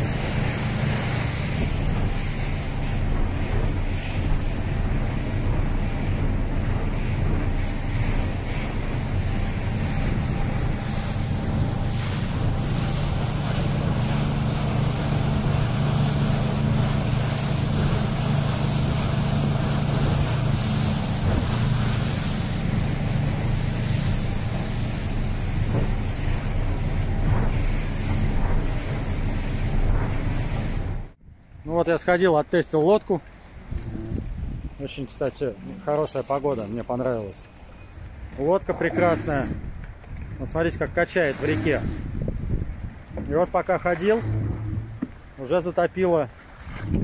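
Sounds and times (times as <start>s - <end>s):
motorboat engine drone: 0.0s - 31.2s, 37.6s - 40.1s, 44.0s - 45.4s
wind buffeting microphone: 0.0s - 31.7s, 33.6s - 35.0s, 38.0s - 45.4s, 46.6s - 47.0s
water splashing along hull: 0.0s - 47.0s.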